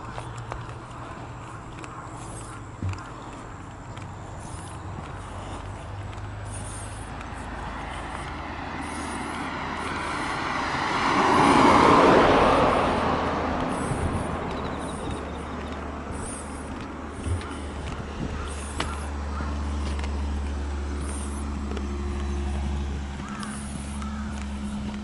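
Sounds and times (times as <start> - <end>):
car driving past: 6.0 - 17.7.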